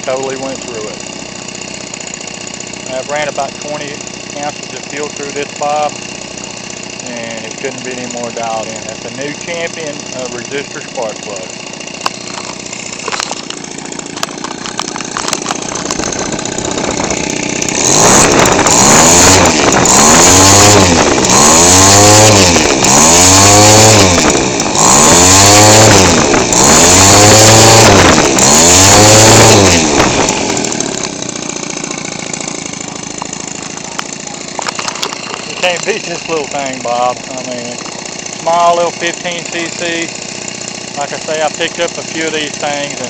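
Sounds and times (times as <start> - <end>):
small two-stroke engine idling: 0.0 - 43.0
engine revving to high scream: 17.7 - 31.0.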